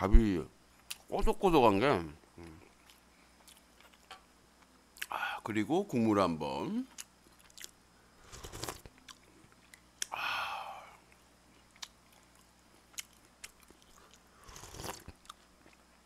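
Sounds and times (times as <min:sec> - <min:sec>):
slurping from a spoon: 0:08.2 - 0:08.8, 0:14.4 - 0:15.1
lip smacks and mouth clicks: 0:08.5 - 0:10.2, 0:11.1 - 0:16.0.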